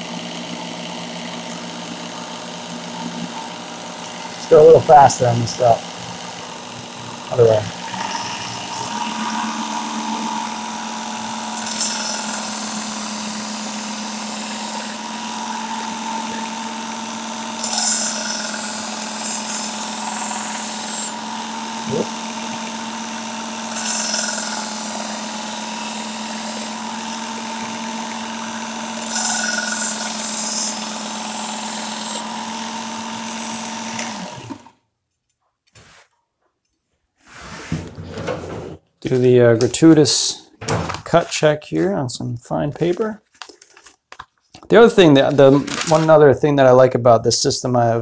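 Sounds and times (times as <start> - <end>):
belt sharpener motor running: 0.0 - 34.8
knife grinding on belt: 29.1 - 30.8.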